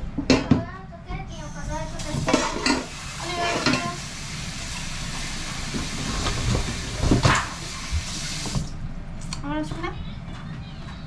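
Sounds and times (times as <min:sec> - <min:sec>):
tap water running into sink: 0:02.0 - 0:08.7.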